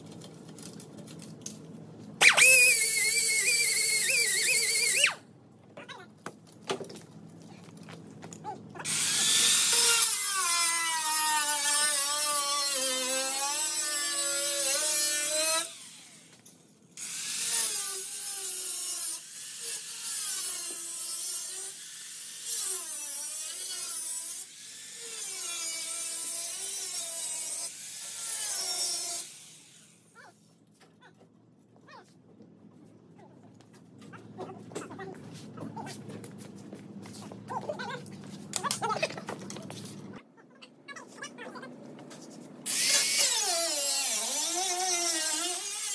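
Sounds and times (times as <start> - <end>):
cut-off wheel cutting sheet metal: 8.9 - 16.3, 42.7 - 45.9.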